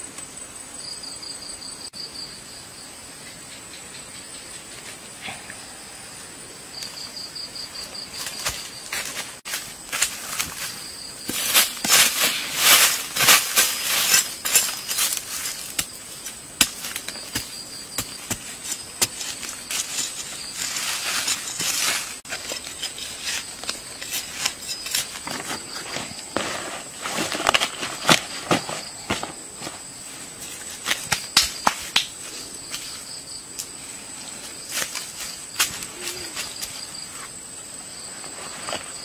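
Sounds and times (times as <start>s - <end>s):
faint high insect whine: 0.0s - 39.0s
digging in dry soil: 7.8s - 37.4s
dry leaves rustling: 8.1s - 31.1s.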